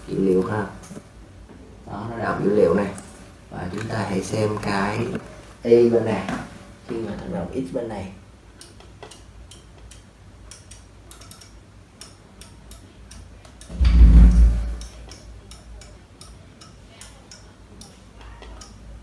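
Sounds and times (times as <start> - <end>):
light irregular clicks: 8.6 - 13.8, 14.7 - 19.0
dull low thump: 13.8 - 14.8.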